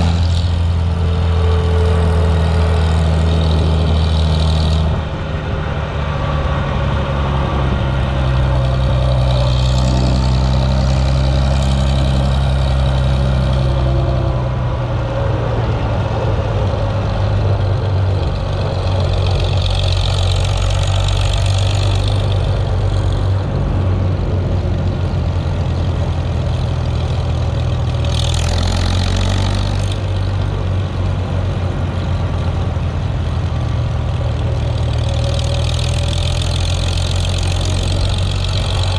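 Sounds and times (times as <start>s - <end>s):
tractor engine running: 0.0s - 38.9s.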